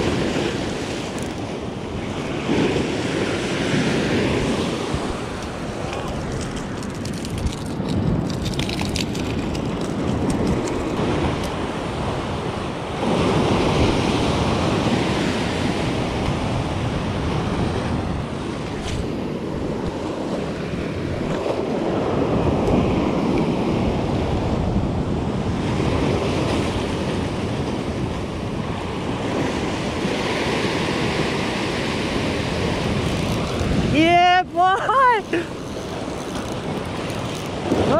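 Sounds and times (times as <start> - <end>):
ocean swell washing over rocks: 0.0 - 37.9
wind buffeting microphone: 0.0 - 37.9.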